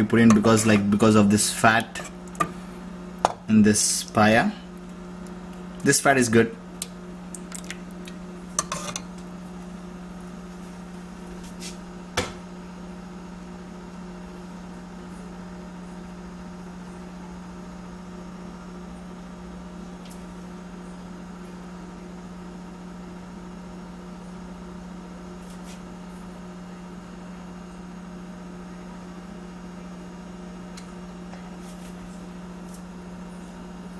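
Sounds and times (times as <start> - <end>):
steady low hum: 0.0 - 33.9.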